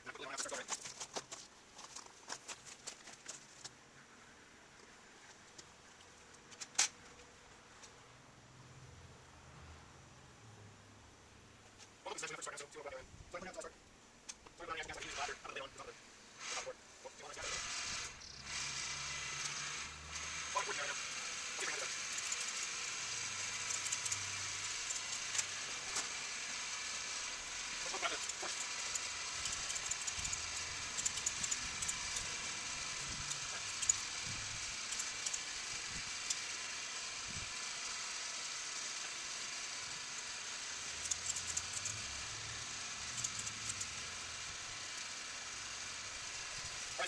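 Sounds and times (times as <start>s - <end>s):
blower whirring hiss: 14.9s - 47.0s.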